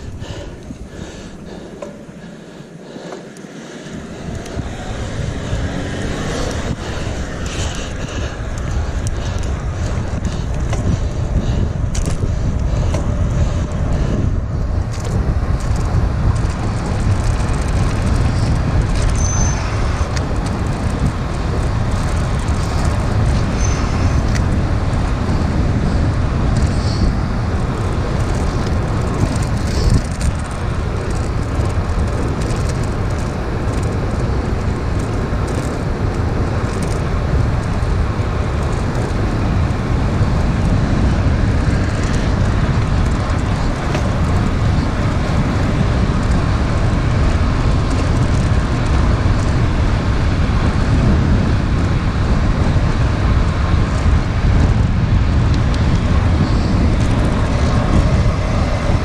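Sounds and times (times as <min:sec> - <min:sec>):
road noise: 0:00.0 - 0:59.0
wind rush: 0:00.0 - 0:59.0.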